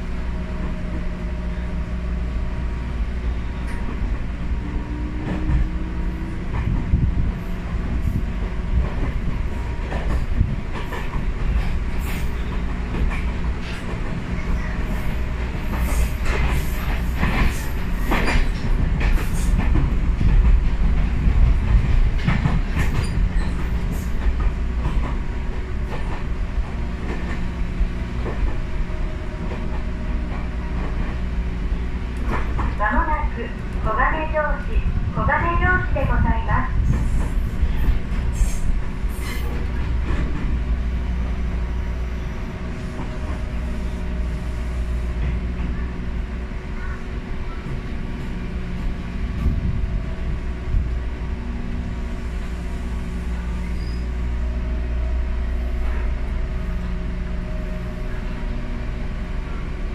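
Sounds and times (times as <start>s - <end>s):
train interior rumble: 0.0s - 59.9s.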